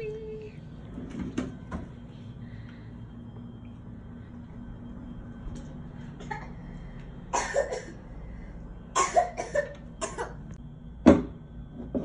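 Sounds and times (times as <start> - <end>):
low room hum: 0.0 - 12.0
person coughing: 7.3 - 8.0, 8.9 - 10.4.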